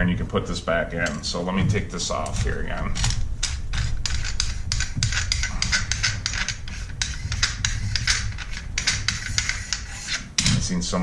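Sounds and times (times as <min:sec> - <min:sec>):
steady low hum: 0:00.0 - 0:11.0
shotgun parts clicking and rattling: 0:02.3 - 0:06.6.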